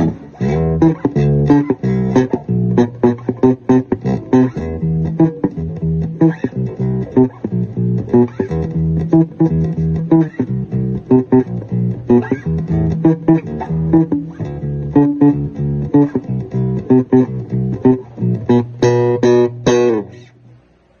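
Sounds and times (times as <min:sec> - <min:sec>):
electric bass plucked fingerstyle: 0:00.0 - 0:20.7.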